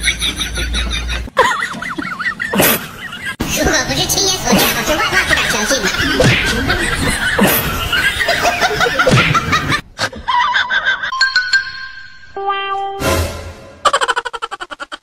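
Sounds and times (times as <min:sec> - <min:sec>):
people laughing: 0:00.0 - 0:03.4, 0:04.5 - 0:11.1, 0:13.8 - 0:15.0.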